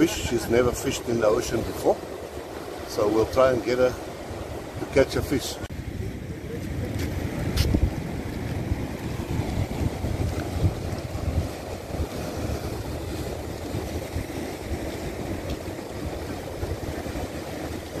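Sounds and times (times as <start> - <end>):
surf breaking on rocks: 0.0 - 18.0
wind buffeting microphone: 3.6 - 18.0.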